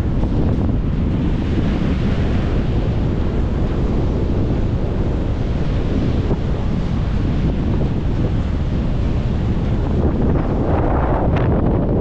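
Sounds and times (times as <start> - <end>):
sea surf breaking: 0.0 - 12.0
wind buffeting microphone: 0.0 - 12.0.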